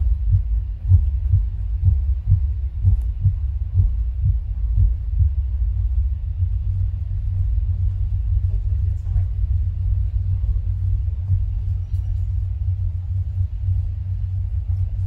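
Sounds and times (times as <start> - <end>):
amplified heartbeat thumps: 0.0 - 15.0
steady low hum: 0.0 - 15.0.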